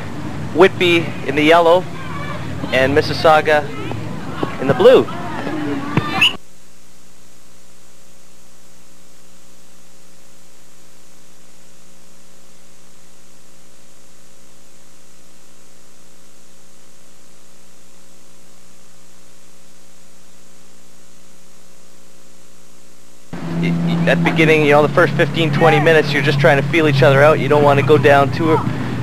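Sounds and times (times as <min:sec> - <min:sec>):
electrical mains hum with hiss: 0:00.0 - 0:29.0.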